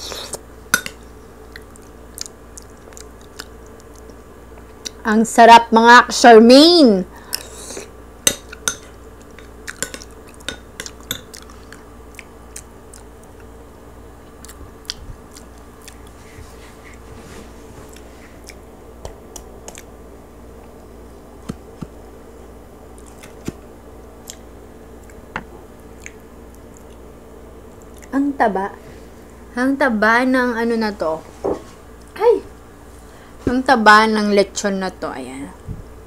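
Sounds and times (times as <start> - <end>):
faint steady hum: 0.0 - 36.0
chewing crispy roast pork: 1.4 - 5.0, 8.5 - 13.6, 14.2 - 17.0, 22.9 - 23.5, 24.2 - 27.1.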